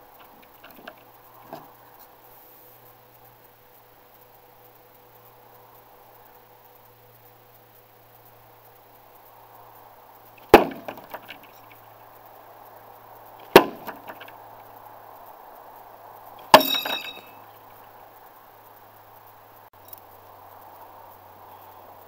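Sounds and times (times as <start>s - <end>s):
board rattling: 0.2s - 1.8s, 10.4s - 11.8s, 13.4s - 14.4s
knives striking wooden target: 10.4s - 11.5s, 13.5s - 14.3s, 16.5s - 17.3s.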